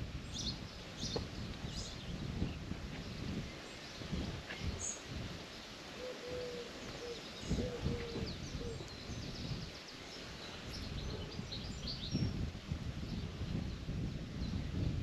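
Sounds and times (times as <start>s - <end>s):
small birds chirping: 0.2s - 12.4s
birds cooing: 5.9s - 9.4s.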